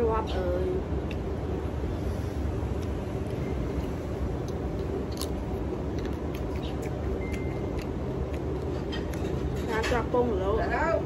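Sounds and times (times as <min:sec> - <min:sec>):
low background rumble: 0:00.0 - 0:11.0
chewing clicks: 0:04.4 - 0:09.4.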